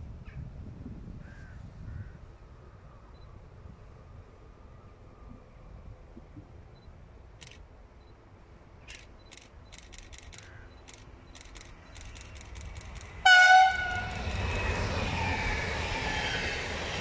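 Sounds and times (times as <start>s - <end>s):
train rolling noise: 8.9s - 17.0s
train horn blast: 13.2s - 14.4s.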